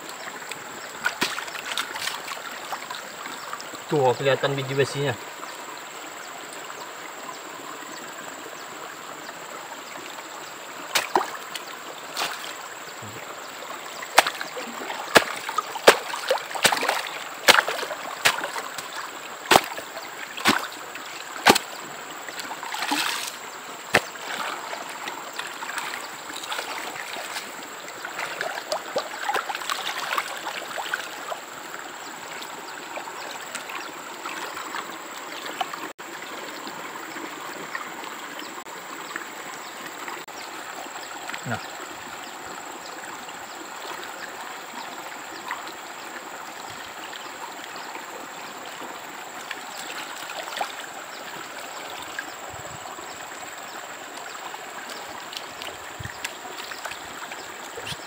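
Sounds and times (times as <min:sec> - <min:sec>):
stream water running: 0:00.0 - 0:58.0
water sloshing: 0:00.5 - 0:05.0, 0:10.8 - 0:35.9, 0:49.4 - 0:53.2
sharp water splashes: 0:00.9 - 0:03.0, 0:10.8 - 0:31.5, 0:49.4 - 0:51.1.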